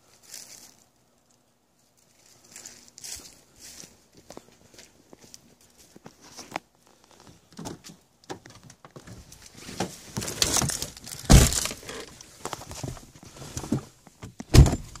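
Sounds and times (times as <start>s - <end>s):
heavy thump: 14.5s - 15.0s.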